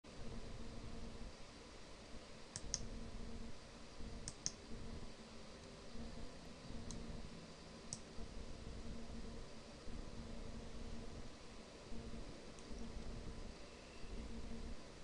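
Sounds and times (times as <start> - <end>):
faint low hum: 0.1 - 15.0
computer mouse clicks: 2.5 - 2.9, 4.2 - 4.6, 6.7 - 7.2, 7.9 - 8.1, 12.5 - 12.9.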